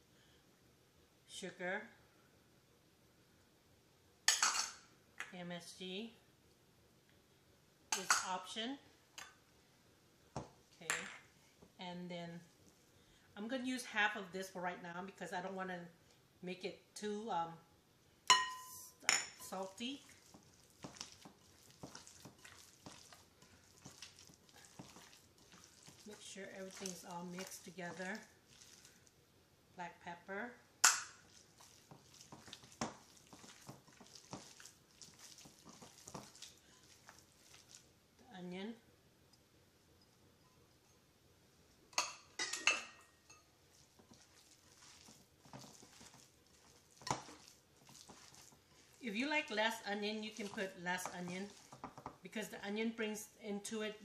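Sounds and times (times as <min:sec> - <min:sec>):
glass bowl clinking: 0:18.3 - 0:19.6, 0:42.0 - 0:43.6
hands squishing raw stuffing: 0:19.4 - 0:29.2, 0:30.8 - 0:37.9, 0:43.7 - 0:52.6
wet squelches of mixing meat: 0:19.4 - 0:29.2, 0:30.0 - 0:38.0, 0:43.6 - 0:53.4.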